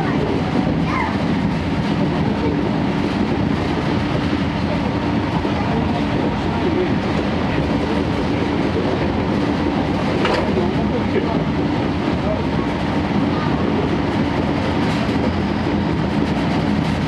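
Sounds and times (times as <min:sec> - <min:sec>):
train coach running on rails: 0:00.0 - 0:17.0.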